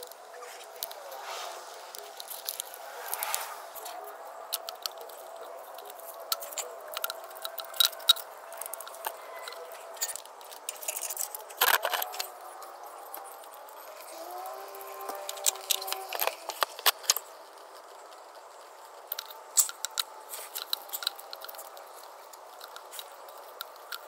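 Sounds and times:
plastic clicks knocks and rattles: 4.6 - 13.8.

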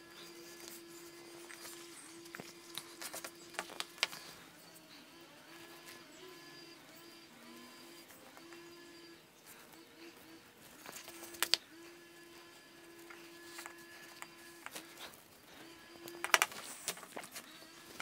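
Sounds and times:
faint hum: 0.0 - 18.0
leather scraping cuts: 0.0 - 18.0
sharp clicks: 5.8 - 11.8, 16.0 - 18.0.

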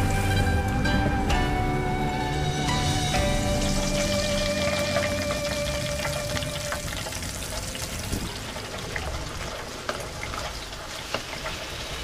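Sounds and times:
chicken sizzling in oil: 2.4 - 12.0.

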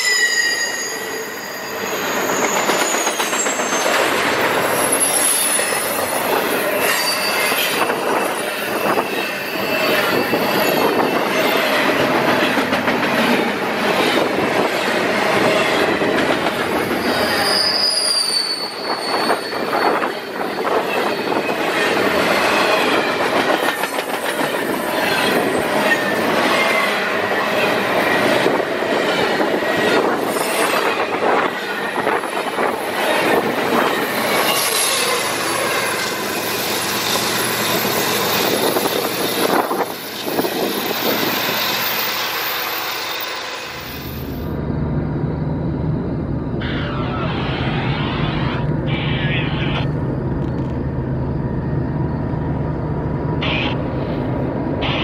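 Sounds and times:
high-pitched wheel squeal: 0.0 - 4.0, 4.6 - 11.6, 16.8 - 21.6
train wheels rumbling and clacking: 1.3 - 46.6, 49.9 - 55.0.

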